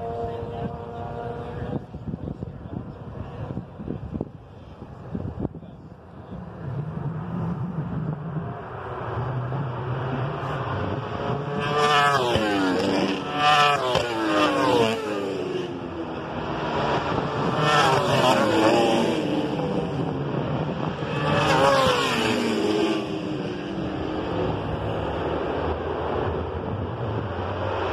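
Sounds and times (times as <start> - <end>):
racing motorcycles at high revs: 0.0 - 2.0, 7.8 - 27.9.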